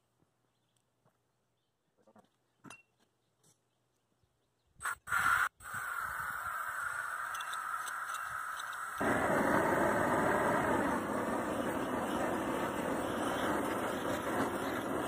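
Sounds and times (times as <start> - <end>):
propane torch igniting bursts: 4.8 - 15.0
torch flame hissing: 4.8 - 15.0.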